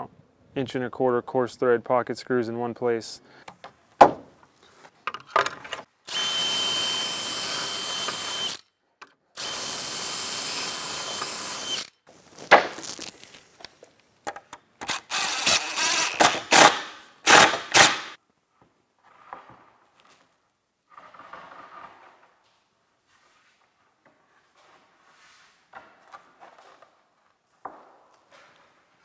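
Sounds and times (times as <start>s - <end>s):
boards knocking and clattering: 3.6s - 4.3s
drill whining: 6.1s - 8.6s, 9.4s - 12.0s, 14.8s - 18.2s.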